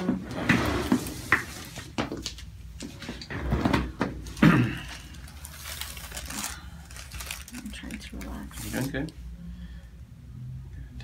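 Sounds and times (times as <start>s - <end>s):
rustling of hands and paper: 4.2s - 9.2s.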